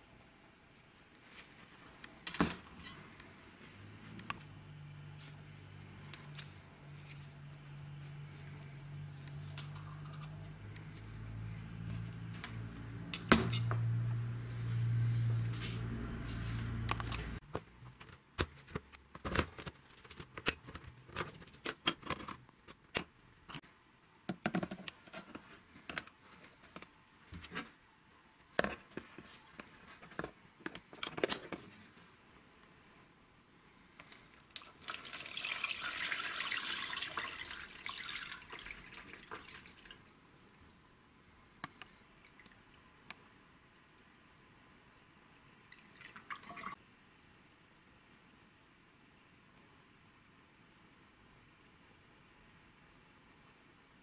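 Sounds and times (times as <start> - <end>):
water poured into tub: 34.1 - 40.0, 45.7 - 46.8.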